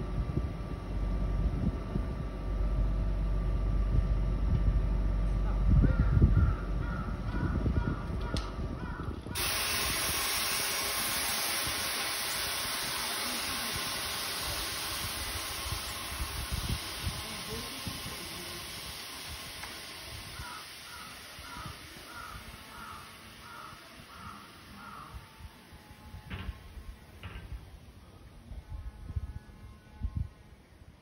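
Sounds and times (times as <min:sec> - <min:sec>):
low rumbling: 0:00.0 - 0:10.7
loud steady hiss: 0:09.3 - 0:31.0.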